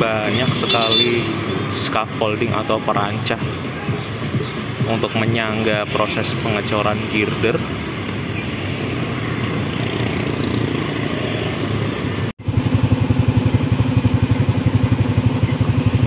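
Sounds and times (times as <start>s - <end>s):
motorcycles going by: 0.0s - 16.0s
street traffic: 0.0s - 16.0s
motorcycle engine idling: 12.4s - 16.0s.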